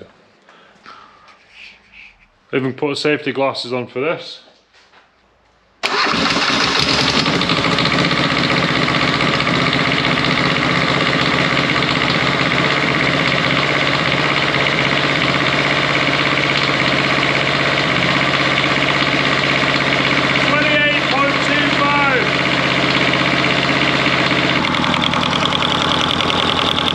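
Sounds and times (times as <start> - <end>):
diesel engine running: 5.8 - 26.9.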